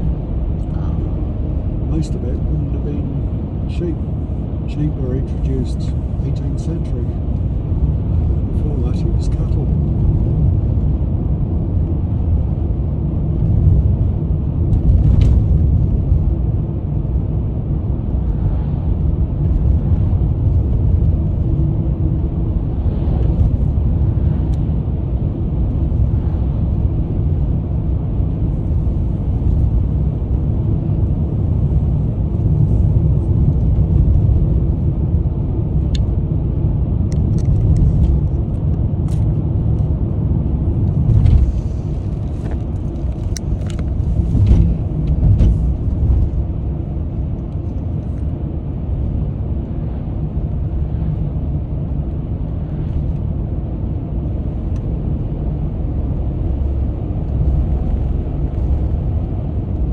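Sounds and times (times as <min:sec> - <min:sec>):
car cabin road rumble: 0:00.0 - 0:59.9.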